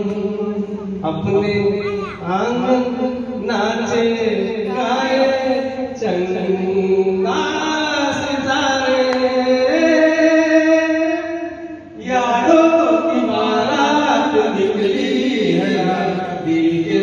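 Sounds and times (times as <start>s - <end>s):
group of people singing: 12.0s - 17.0s.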